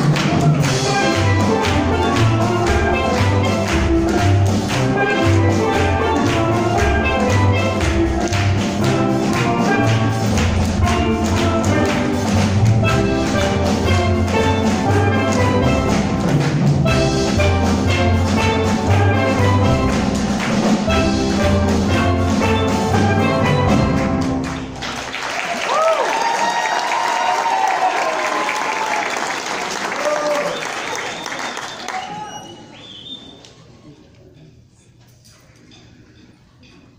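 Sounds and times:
steel drum ensemble playing: 0.0 - 25.2.

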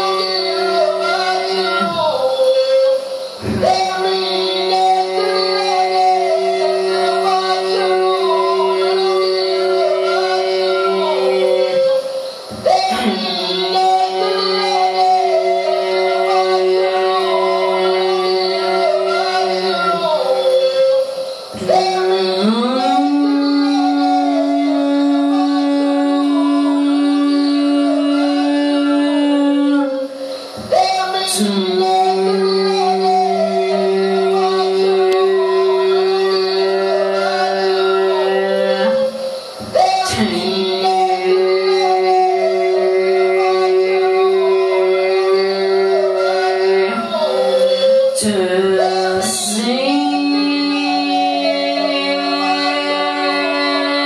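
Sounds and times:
short hissy bursts: 0.0 - 17.2, 17.9 - 23.6, 29.9 - 33.2, 35.5 - 42.2
held drone of tones: 0.0 - 54.0
person singing into a microphone: 0.0 - 54.0.

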